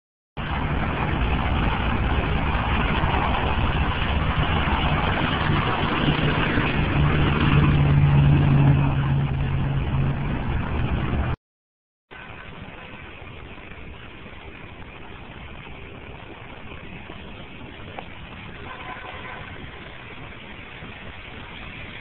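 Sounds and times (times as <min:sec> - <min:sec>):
low engine hum: 0:00.4 - 0:11.4
street traffic rush: 0:00.4 - 0:11.4, 0:12.1 - 0:22.0.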